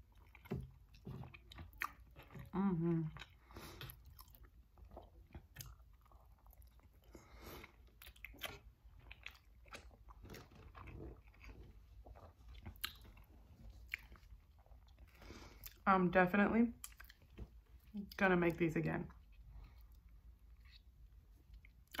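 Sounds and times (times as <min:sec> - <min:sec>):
person chewing soft food: 0:00.0 - 0:15.8, 0:16.8 - 0:18.1, 0:19.1 - 0:22.0
wet mouth clicks and smacks: 0:16.8 - 0:17.2, 0:21.6 - 0:22.0.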